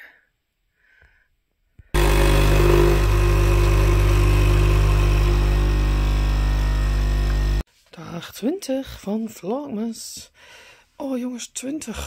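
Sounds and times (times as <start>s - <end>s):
espresso machine pump buzzing: 2.0s - 7.6s.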